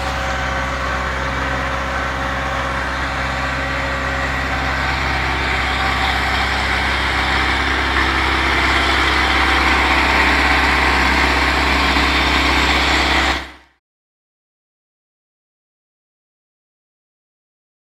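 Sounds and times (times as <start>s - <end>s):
rotary tiller working soil: 0.0s - 13.7s
tractor diesel engine running: 0.0s - 13.7s.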